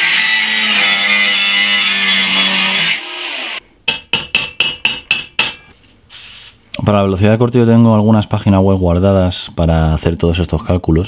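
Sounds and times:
angle grinder cutting metal: 0.0 - 3.6
hammer tapping steel: 3.9 - 5.7.

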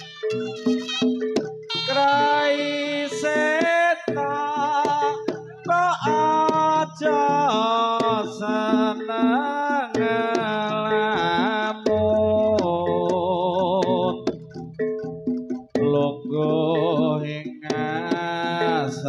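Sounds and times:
sharp drum strokes: 11.9 - 13.8
low drone: 12.0 - 13.0.

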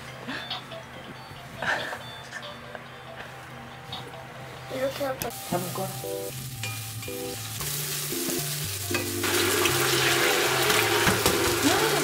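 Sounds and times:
onions sizzling in oil: 5.3 - 12.0.

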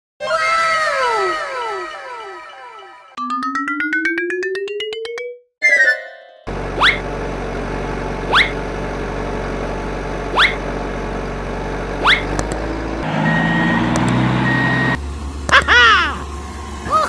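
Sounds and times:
short rising whistles: 12.0 - 12.3.

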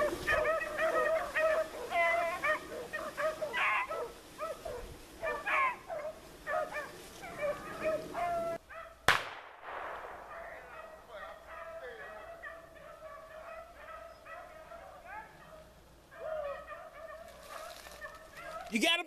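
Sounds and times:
beagles baying and yipping: 0.0 - 9.0, 10.2 - 18.8
sharp crack: 9.0 - 10.9.

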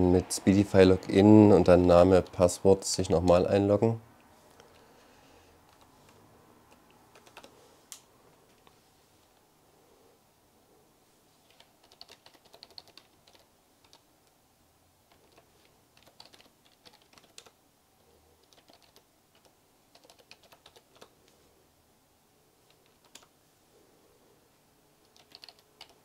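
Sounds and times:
faint keyboard typing: 5.6 - 9.4, 11.4 - 14.4, 15.0 - 17.6, 18.4 - 21.4, 22.6 - 23.4, 25.0 - 26.0.

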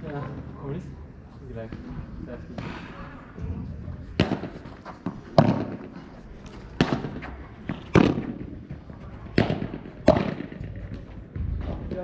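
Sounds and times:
ball pops off rackets: 4.2 - 8.5.

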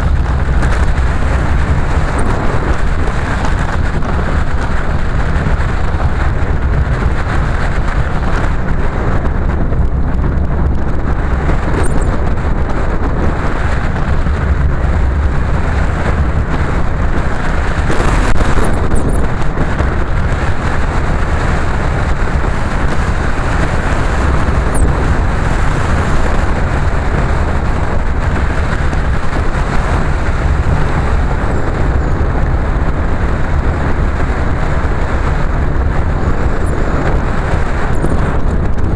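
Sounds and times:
car engine and tyre rumble: 0.0 - 38.9.

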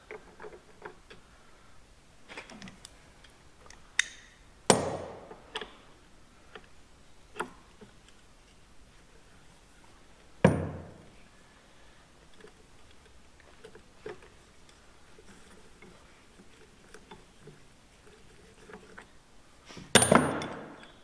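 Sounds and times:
metal-on-metal knocks and clanks: 10.4 - 11.1, 20.0 - 20.8.

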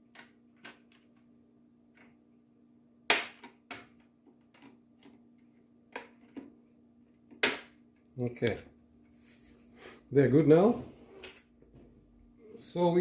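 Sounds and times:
loud sharp plastic snap: 3.1 - 3.9, 7.3 - 7.8.

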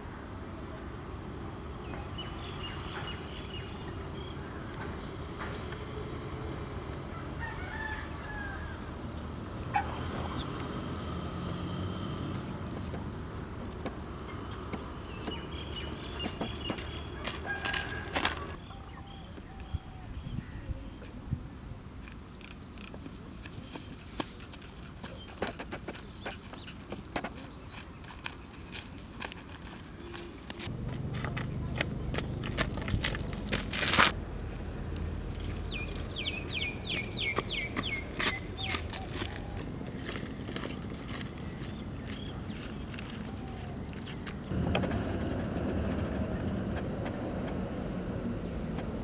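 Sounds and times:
bird calls: 14.3 - 20.7, 35.4 - 40.8, 41.4 - 44.3
footsteps on dry twigs: 14.6 - 18.6, 22.8 - 34.2, 35.3 - 44.6.

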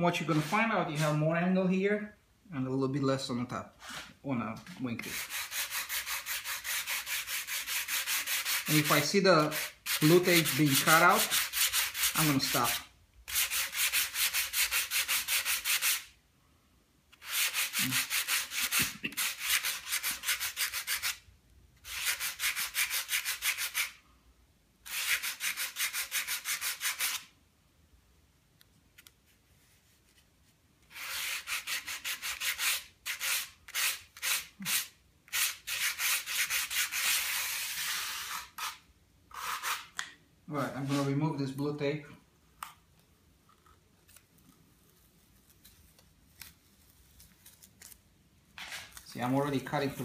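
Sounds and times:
sandpaper rubbing on wood: 0.2 - 1.2, 5.0 - 16.1, 17.2 - 21.2, 21.8 - 24.0, 24.9 - 27.3, 30.9 - 39.9, 40.8 - 41.2.

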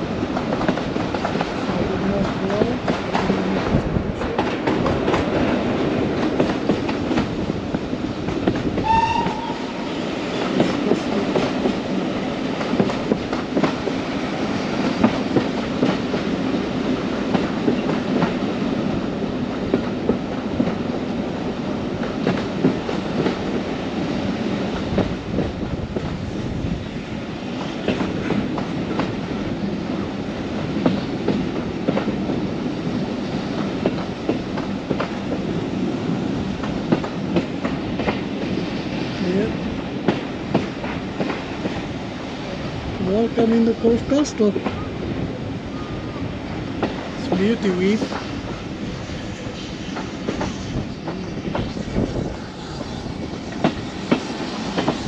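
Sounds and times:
train rumbling: 0.0 - 55.0
train whistle: 8.8 - 10.0.

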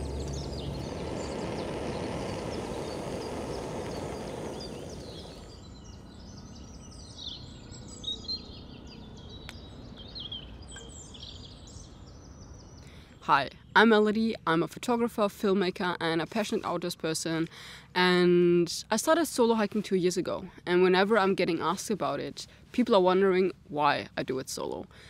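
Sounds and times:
low rushing noise: 0.0 - 5.6
birds chirping and twittering: 0.0 - 14.2.

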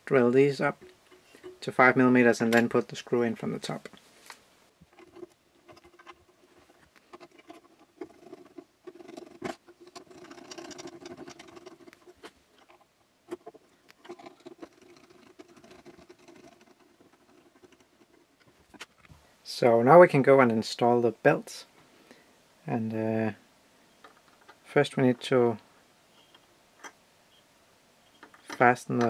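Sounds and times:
small screws clicking and scratching: 4.2 - 19.2, 28.0 - 28.7.

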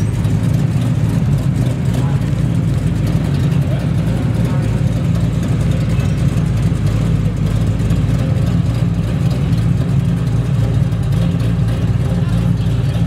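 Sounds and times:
car engine idling low rumble: 0.0 - 13.0.

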